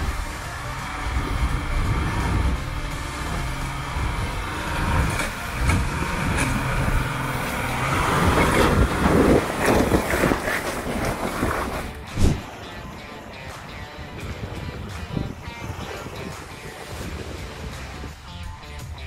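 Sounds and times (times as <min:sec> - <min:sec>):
diesel truck engine under load: 0:00.0 - 0:18.9
tyres crunching over stones: 0:04.5 - 0:12.5.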